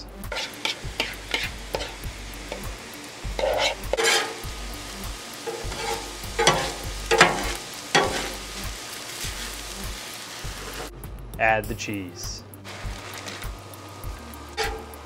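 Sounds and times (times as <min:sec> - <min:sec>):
meat sizzling on a griddle: 0:00.2 - 0:10.9, 0:12.6 - 0:15.0
metal spatula scraping steel: 0:00.3 - 0:02.0, 0:03.4 - 0:04.5, 0:05.4 - 0:08.4, 0:14.5 - 0:15.0.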